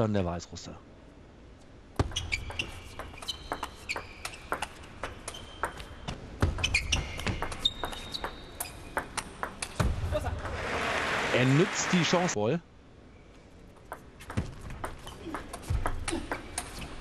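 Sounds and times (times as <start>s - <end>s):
shoe squeaks on floor: 2.1s - 9.2s.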